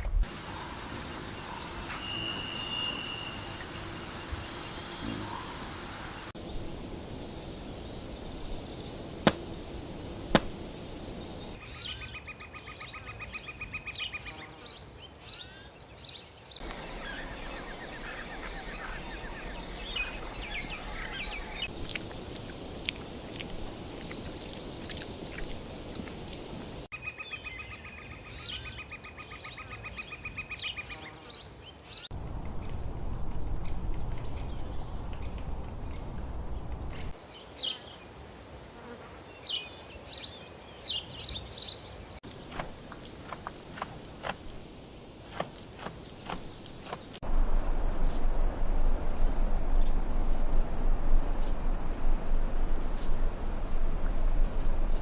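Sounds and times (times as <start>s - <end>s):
steady hiss: 0.2s - 11.6s, 21.6s - 26.9s, 42.2s - 55.0s
bird chirps: 1.4s - 5.6s, 10.3s - 21.7s.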